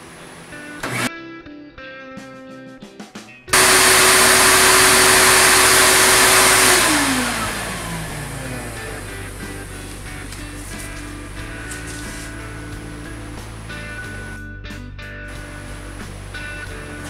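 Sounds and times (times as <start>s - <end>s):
vacuum motor running: 0.2s - 1.1s, 3.6s - 12.4s, 15.4s - 17.0s.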